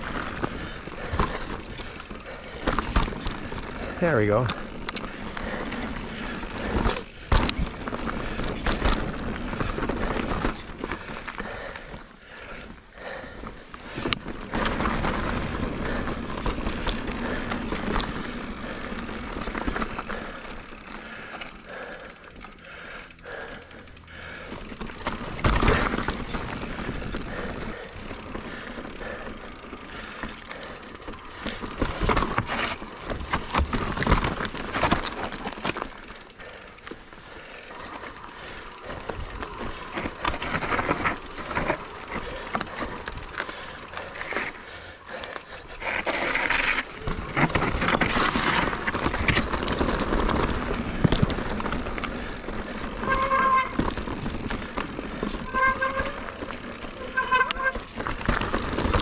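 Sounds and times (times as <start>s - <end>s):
bike knocking and rattling: 0.0s - 59.0s
bike tyres crunching over rock: 0.0s - 59.0s
disc brakes squealing: 52.8s - 54.0s, 55.2s - 58.0s.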